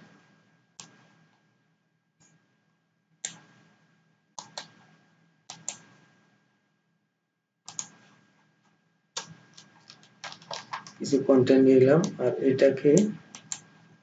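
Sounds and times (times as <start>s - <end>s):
faint steady hum: 0.0s - 14.0s
computer mouse clicks: 0.8s - 1.0s, 3.2s - 3.5s, 4.4s - 4.8s, 5.5s - 5.9s, 7.7s - 8.0s, 9.2s - 11.0s, 13.0s - 13.7s.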